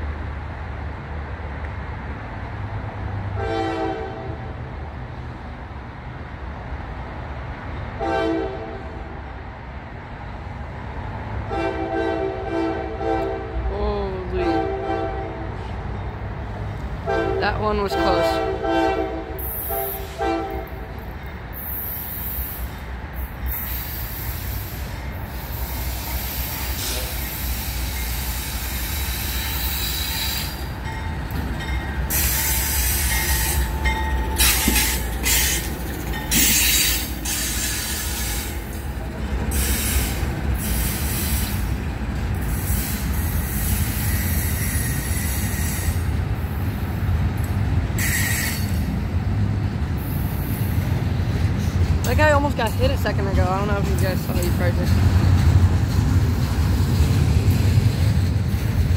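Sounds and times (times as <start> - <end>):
freight train rumbling on rails: 0.0 - 58.9
train horn blast: 3.3 - 4.5, 8.0 - 9.1, 11.5 - 15.8, 17.0 - 20.9
high-pitched wheel squeal: 48.0 - 48.8.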